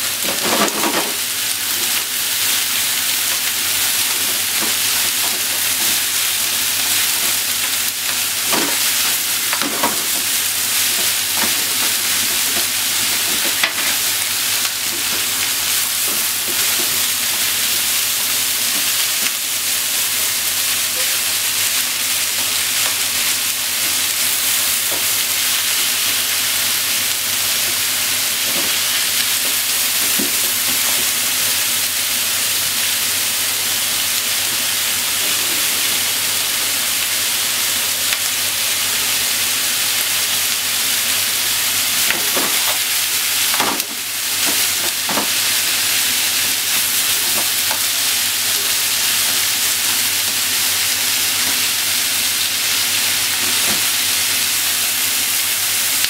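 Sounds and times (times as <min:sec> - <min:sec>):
meat and vegetables sizzling in pan: 0:00.0 - 0:56.0.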